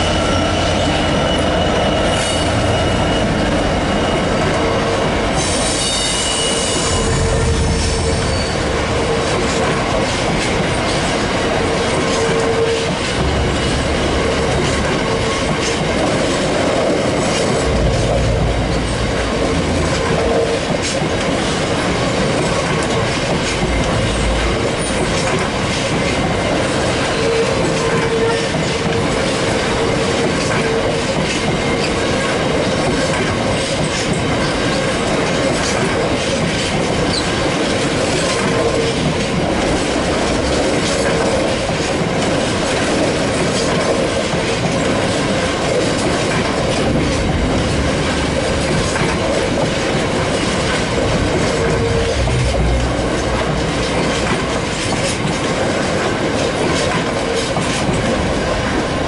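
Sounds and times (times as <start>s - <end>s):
wheel squeal: 0.0s - 4.7s, 5.4s - 8.7s
wheels rumbling on rails: 0.0s - 59.0s.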